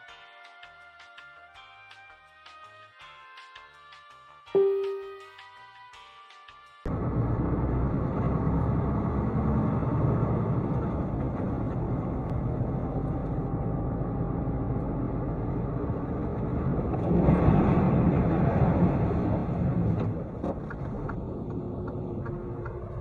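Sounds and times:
road and engine noise: 6.9s - 23.0s.

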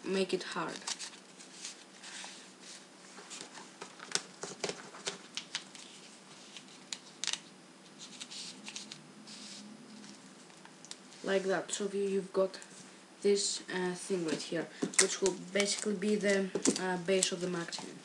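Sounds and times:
paper tubes rustling and crackling: 0.4s - 10.7s, 14.2s - 18.0s.

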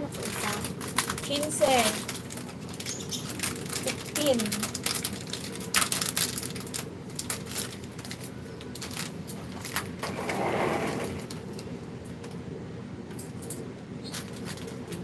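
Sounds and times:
plastic sachets crinkling: 0.0s - 10.0s
low steady hum: 0.0s - 15.0s.

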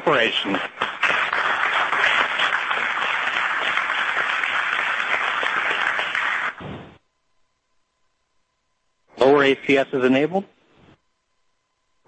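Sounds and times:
crowd applauding: 0.0s - 6.6s.

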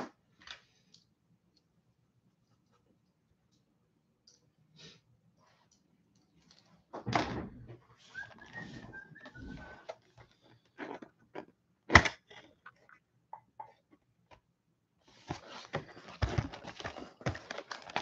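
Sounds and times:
cellophane crinkling and rustling: 15.1s - 18.0s.

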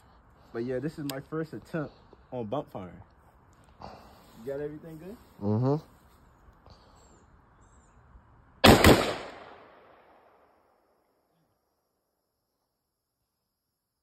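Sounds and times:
gunshots: 8.6s - 10.4s
gunshot echo: 8.6s - 10.6s.

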